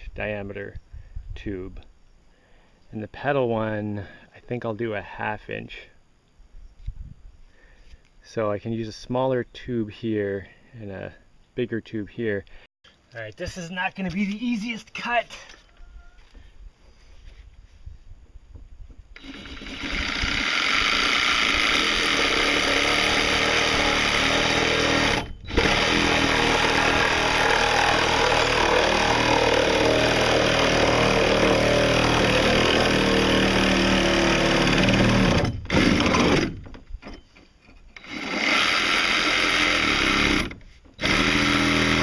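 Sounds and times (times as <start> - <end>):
reciprocating saw cutting: 19.2 - 36.6, 38.0 - 42.0.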